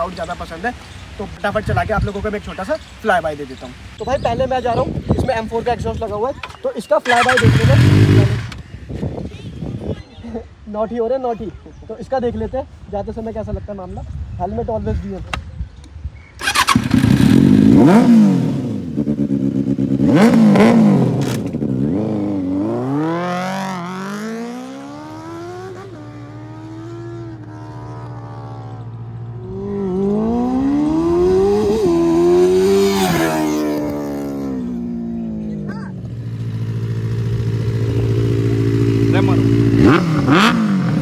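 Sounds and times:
motorcycle engine revving: 0:07.0 - 0:08.7, 0:16.4 - 0:41.0
motorcycle passing at speed: 0:16.4 - 0:41.0
motorcycle idling: 0:35.8 - 0:40.5.

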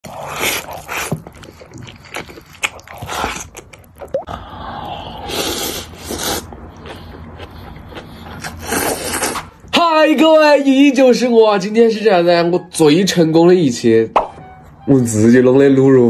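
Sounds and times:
noodles being slurped: 0:00.0 - 0:09.5
person chewing: 0:00.0 - 0:09.7.

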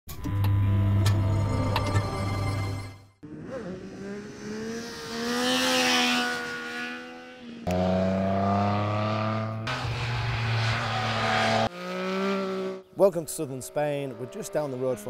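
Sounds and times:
motorcycle engine at high revs: 0:03.2 - 0:12.9, 0:13.6 - 0:15.0.

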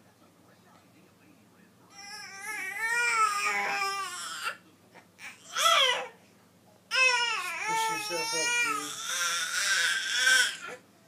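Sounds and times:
baby crying: 0:01.9 - 0:04.6, 0:05.2 - 0:06.2, 0:06.9 - 0:10.8.

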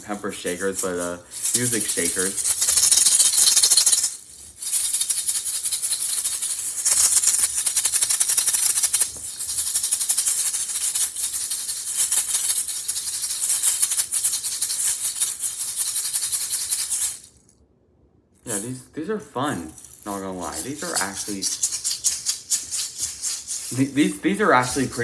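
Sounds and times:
shakers rattling: 0:00.0 - 0:17.5, 0:19.6 - 0:25.0.

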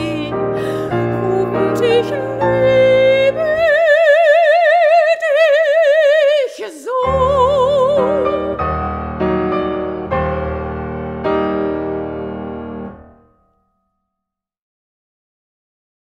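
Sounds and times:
soprano singing with vibrato: 0:00.0 - 0:08.9
piano chords: 0:00.0 - 0:13.8.

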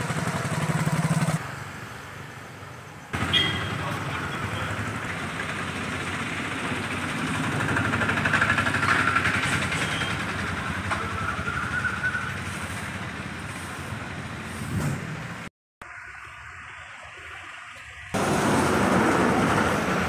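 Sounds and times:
traffic hum: 0:00.0 - 0:20.0
vehicle passing by: 0:03.2 - 0:15.5, 0:18.2 - 0:20.0.

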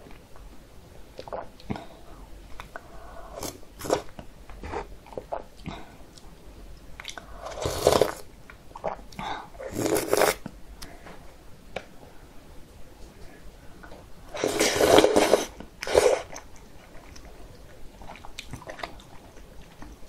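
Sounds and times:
slurp from spoon: 0:09.6 - 0:10.4.

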